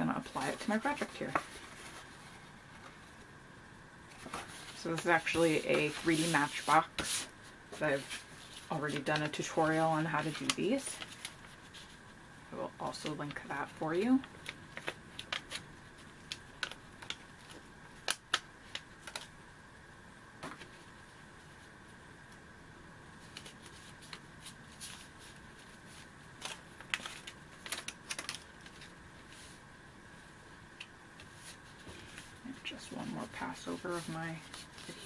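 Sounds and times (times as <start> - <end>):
sticker paper peeling crackles: 4.2 - 11.9, 12.9 - 19.3, 23.2 - 29.6.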